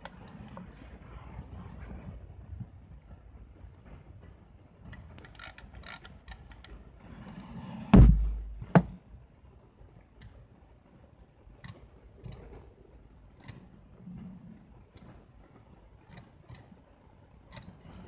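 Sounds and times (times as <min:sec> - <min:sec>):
loud thump: 0:07.9 - 0:09.0.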